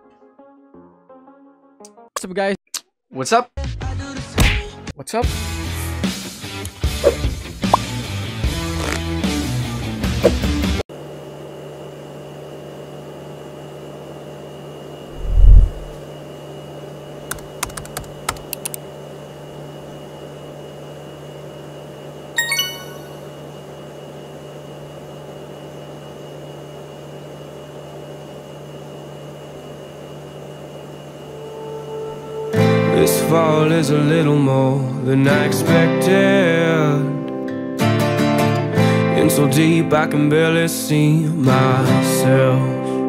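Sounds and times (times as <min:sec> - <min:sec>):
room hum: 0:15.1 - 0:16.1
low thump: 0:15.2 - 0:16.0
keyboard keystroke clicks: 0:17.3 - 0:18.8.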